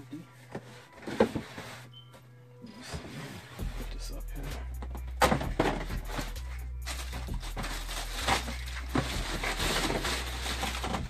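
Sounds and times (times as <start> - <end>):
tissue paper rustling: 5.7 - 11.0.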